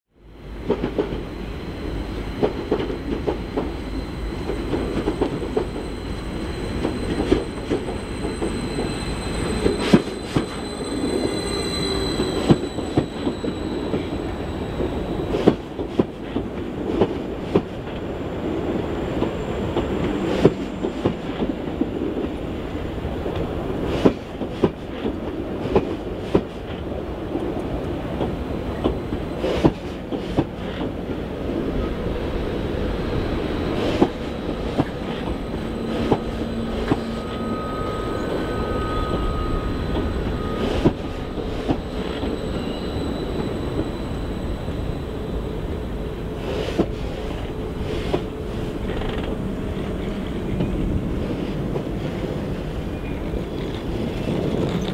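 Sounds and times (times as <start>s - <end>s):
train wheels rumbling and clicking: 0.4s - 54.9s
thin high squeal: 1.3s - 15.8s, 32.4s - 48.1s.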